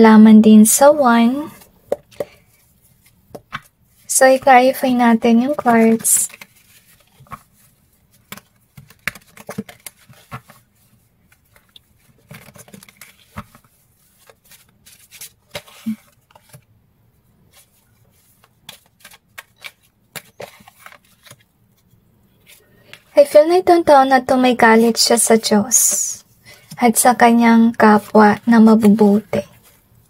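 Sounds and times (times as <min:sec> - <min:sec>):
cards being shuffled: 0:01.4 - 0:16.7, 0:17.5 - 0:23.1.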